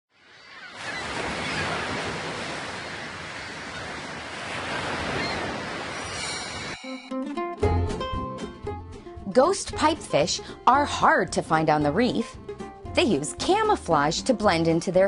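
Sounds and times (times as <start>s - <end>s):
ocean waves breaking: 0.1s - 6.8s.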